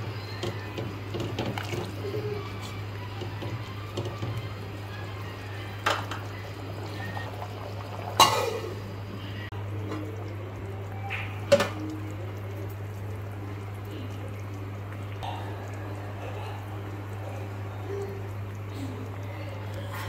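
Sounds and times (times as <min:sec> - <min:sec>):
curry bubbling in a pot: 0:00.0 - 0:20.0
low constant hum: 0:00.0 - 0:20.0
cookware clinking: 0:08.1 - 0:08.8.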